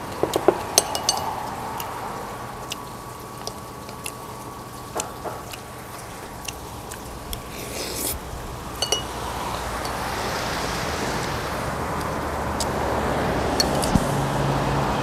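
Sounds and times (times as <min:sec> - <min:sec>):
spoons and bowls clinking: 0:00.3 - 0:01.4, 0:08.8 - 0:09.2, 0:13.6 - 0:14.0
steady rushing noise: 0:07.5 - 0:15.0.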